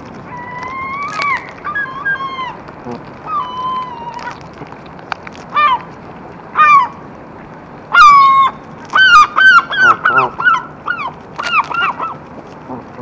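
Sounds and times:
geese honking: 6.5 - 7.0, 7.9 - 12.2.

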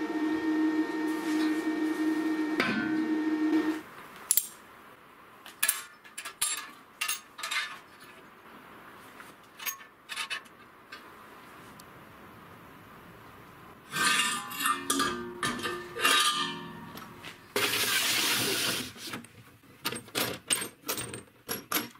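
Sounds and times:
steady multi-pitched hum: 0.0 - 3.8
metallic clinks of steel plates: 14.3 - 17.2.

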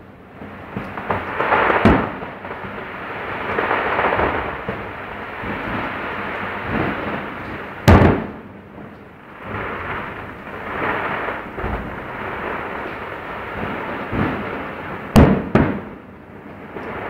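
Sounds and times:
distant fireworks bursting: 0.0 - 17.0
sharp fireworks bangs: 0.0 - 17.0.

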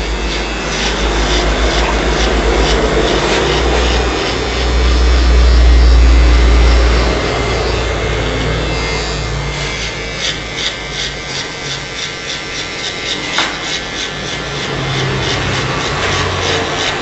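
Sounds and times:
electric hair clipper buzzing: 0.0 - 17.0
clipper blade rasping through hair: 9.6 - 14.7.

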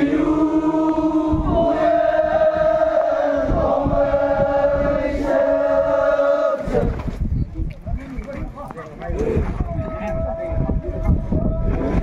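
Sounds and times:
men chanting a long note: 0.0 - 7.0.

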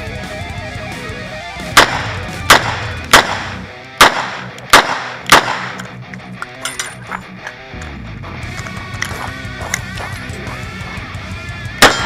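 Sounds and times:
guitar music: 0.0 - 12.0
revolver gunshots: 1.7 - 6.0, 11.8 - 12.0.

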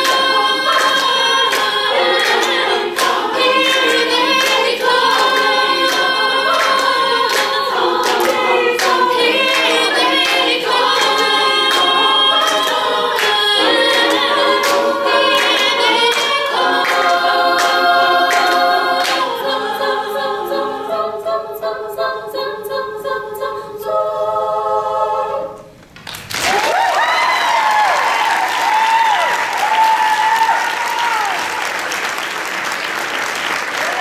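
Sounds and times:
women singing a cappella: 0.0 - 25.8
audience applause and cheering: 26.0 - 34.0.

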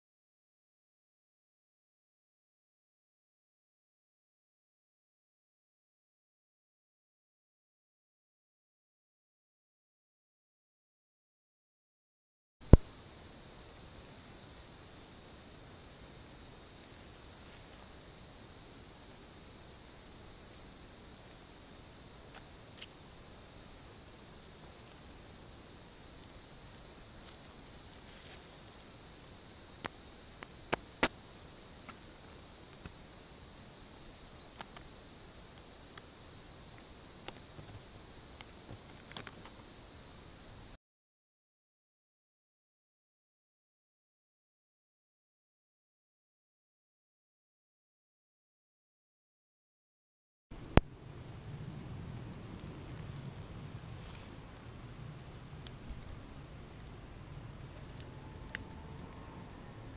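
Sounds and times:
high-pitched insect chorus: 12.6 - 40.8.

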